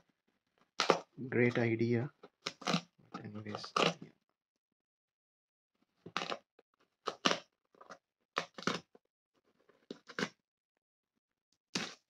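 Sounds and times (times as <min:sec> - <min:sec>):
cardboard tear strip ripping: 0:00.8 - 0:01.1, 0:03.5 - 0:04.0, 0:07.1 - 0:07.4.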